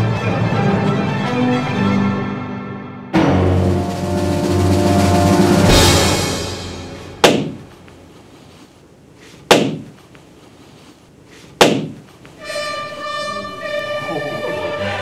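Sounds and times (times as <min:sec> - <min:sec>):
orchestral string music: 0:00.0 - 0:07.9, 0:12.4 - 0:15.0
balloon bursting with bang: 0:05.7 - 0:07.8, 0:09.4 - 0:09.9, 0:11.6 - 0:12.0.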